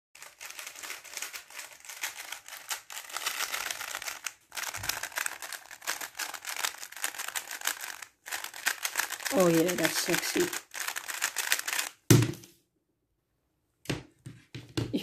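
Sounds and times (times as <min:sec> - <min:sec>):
puzzle cube plastic clicks: 0:00.2 - 0:12.1.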